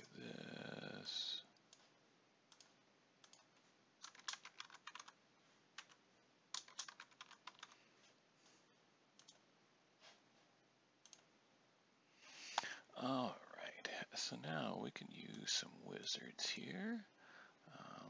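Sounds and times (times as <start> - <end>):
faint keyboard typing: 1.5 - 8.2, 9.2 - 10.2, 11.0 - 11.3.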